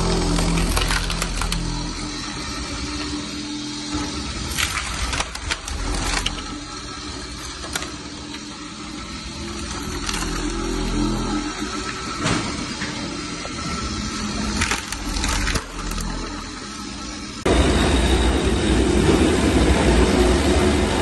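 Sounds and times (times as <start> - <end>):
wood cracking: 0.0 - 2.0, 4.3 - 11.6, 14.1 - 16.4
wood pieces clattering: 0.0 - 2.0, 4.4 - 8.5, 9.2 - 11.5, 14.2 - 16.4
floor stripper motor hum: 0.0 - 21.0.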